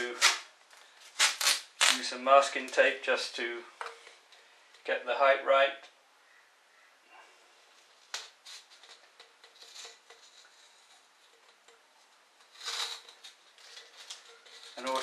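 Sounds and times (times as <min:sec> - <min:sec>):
short rasp of tape: 0:01.2 - 0:02.0.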